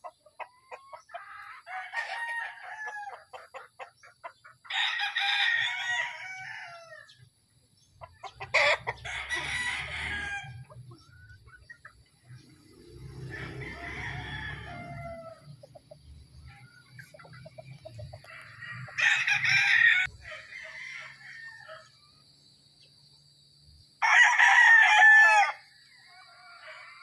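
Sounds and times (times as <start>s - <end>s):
roosters crowing: 0.0s - 7.3s, 8.0s - 22.4s, 23.9s - 27.0s.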